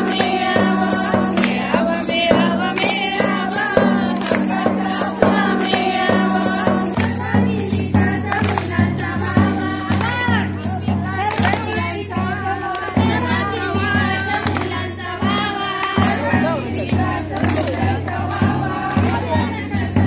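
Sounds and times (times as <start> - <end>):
deep drum beat: 0.0 - 20.0
percussion beat: 0.0 - 20.0
women singing together: 0.0 - 20.0.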